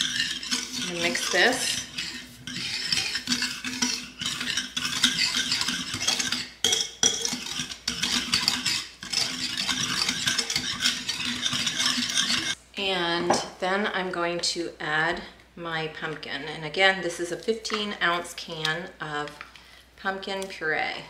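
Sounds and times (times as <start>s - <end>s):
whisk scraping a ceramic bowl: 0.0s - 12.6s.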